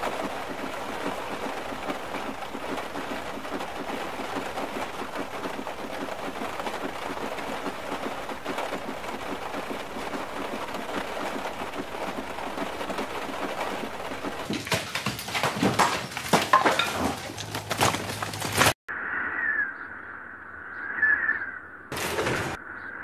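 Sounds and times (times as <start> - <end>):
heavy rain on car roof: 0.0 - 16.4.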